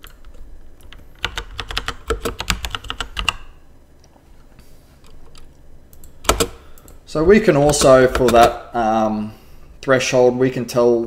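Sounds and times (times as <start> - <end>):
typing on keyboard: 0.0 - 3.5, 5.9 - 7.0, 7.6 - 8.6.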